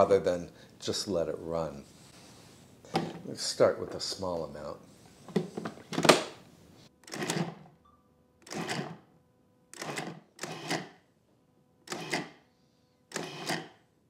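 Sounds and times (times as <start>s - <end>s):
food processor pulsing: 7.0s - 7.6s, 8.4s - 9.0s, 9.7s - 10.9s, 13.1s - 13.8s.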